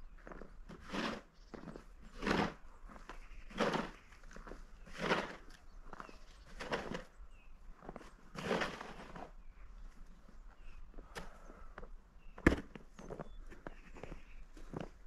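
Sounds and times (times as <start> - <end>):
footsteps crunching in snow: 0.0 - 11.1, 12.7 - 15.0
snow shovel scraping: 0.7 - 2.6, 3.4 - 4.0, 4.8 - 5.5, 6.4 - 7.1, 8.0 - 9.4.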